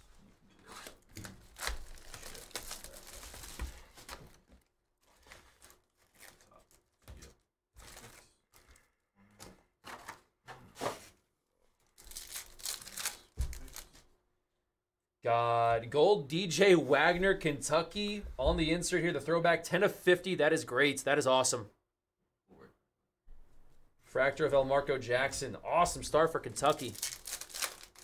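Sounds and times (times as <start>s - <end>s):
wrapping crinkling and tearing: 0.6s - 8.9s, 11.8s - 14.0s, 26.6s - 28.0s
foil pack torn open: 12.0s - 13.9s, 26.8s - 28.0s.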